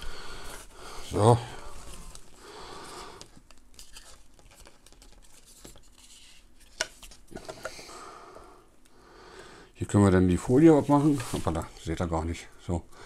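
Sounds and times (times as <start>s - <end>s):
plastic webcam handling rustle: 1.8s - 2.4s, 3.2s - 7.7s.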